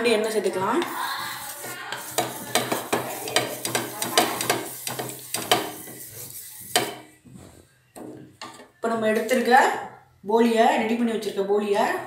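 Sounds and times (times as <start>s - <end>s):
pad rubbing oil on griddle: 0.8s - 6.9s.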